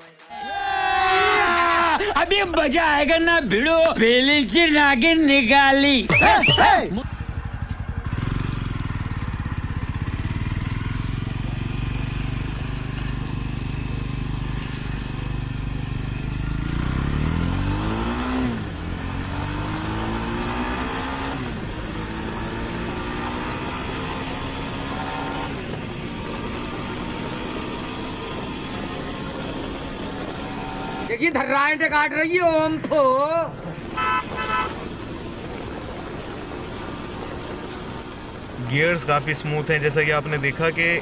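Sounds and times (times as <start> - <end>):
motorcycle engine accelerating: 6.1 - 31.3, 33.6 - 41.0.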